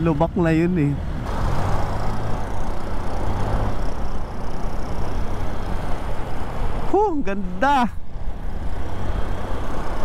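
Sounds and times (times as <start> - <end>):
motorcycle engine: 1.2 - 6.8.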